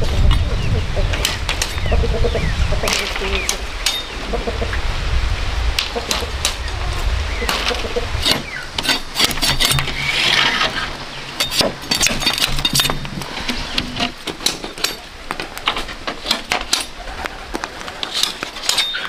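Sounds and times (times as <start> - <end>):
machete splitting bamboo: 7.5 - 10.7.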